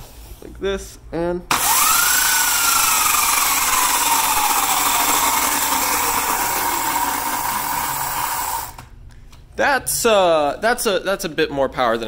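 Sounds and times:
electric motor whine: 0:01.6 - 0:08.8.

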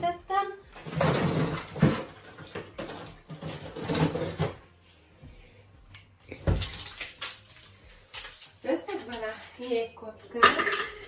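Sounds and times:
kitchen handling noises: 0:00.7 - 0:04.8, 0:08.3 - 0:11.0.

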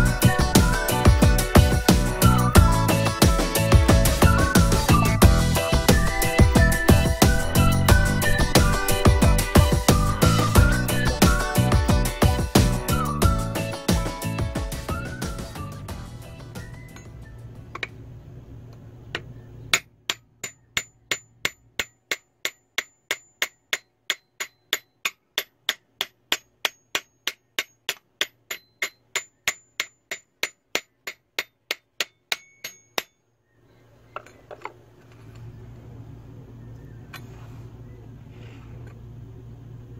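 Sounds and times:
axe head tapping with metallic ring: 0:19.2 - 0:33.3.

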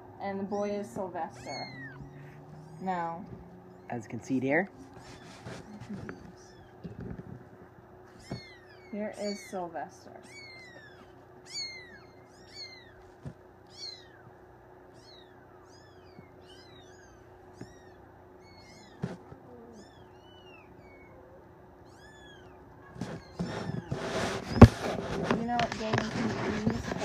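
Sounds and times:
kittens mewing: 0:00.3 - 0:24.7
rustling: 0:00.5 - 0:14.2, 0:21.9 - 0:27.0.

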